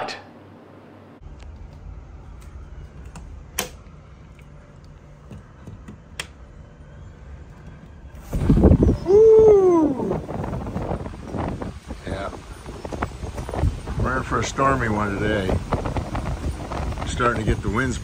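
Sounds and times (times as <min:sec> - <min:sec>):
wind buffeting microphone: 0:07.1 - 0:18.0.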